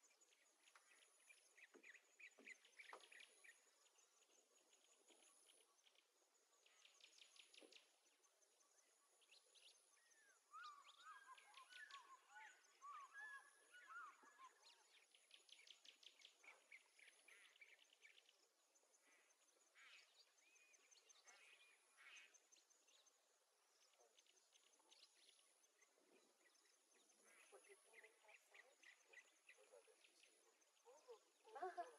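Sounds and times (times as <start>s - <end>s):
whistled bird notes: 9.6s - 15.0s.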